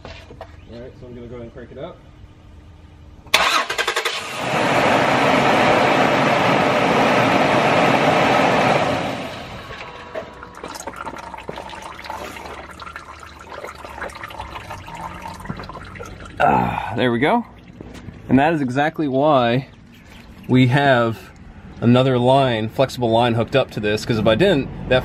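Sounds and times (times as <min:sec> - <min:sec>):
engine cranking on starter: 0:03.2 - 0:06.4
fluid dripping: 0:10.0 - 0:21.9
fluid gushing into pan: 0:10.3 - 0:16.4.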